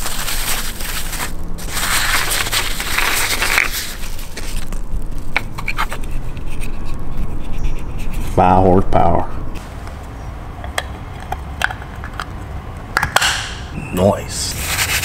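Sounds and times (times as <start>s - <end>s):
packing wrap crinkling and tearing: 0.0s - 7.0s.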